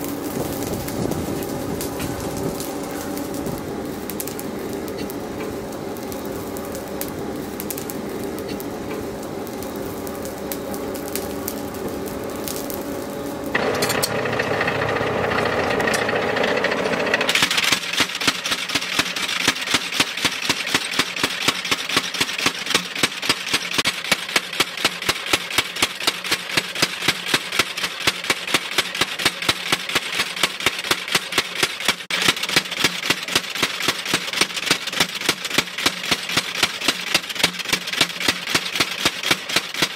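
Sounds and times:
forge hum: 0:00.0 - 0:21.2
hammer machinery running up: 0:13.5 - 0:24.7
power hammer striking steel: 0:13.6 - 0:39.9.

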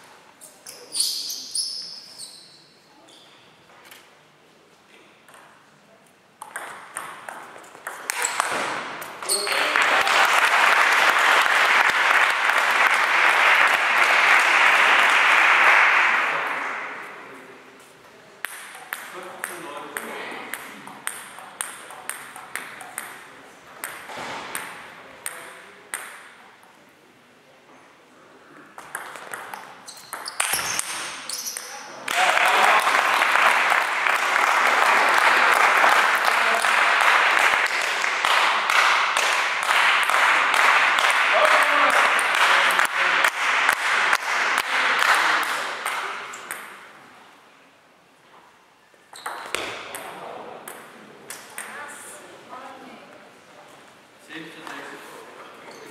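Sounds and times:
table tennis ball tap: 0:06.4 - 0:08.7, 0:18.4 - 0:23.2, 0:23.8 - 0:26.3, 0:28.8 - 0:31.0, 0:45.8 - 0:46.8, 0:50.7 - 0:51.8
spectators applauding: 0:09.2 - 0:16.7, 0:32.0 - 0:46.0.

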